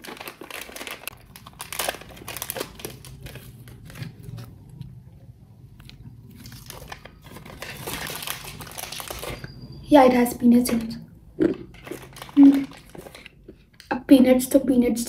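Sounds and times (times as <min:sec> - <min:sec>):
plastic snack packet crinkling: 0:00.0 - 0:04.8, 0:06.3 - 0:09.5, 0:10.6 - 0:13.8.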